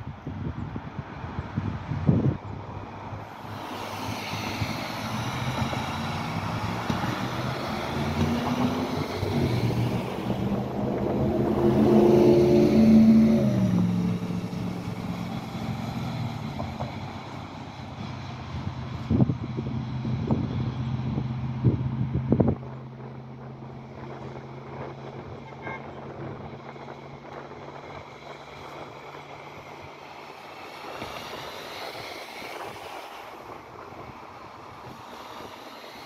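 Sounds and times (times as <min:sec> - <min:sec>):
vehicle engine passing by: 0:01.2 - 0:36.0
tyre hiss on wet road: 0:03.2 - 0:19.5, 0:27.7 - 0:36.0.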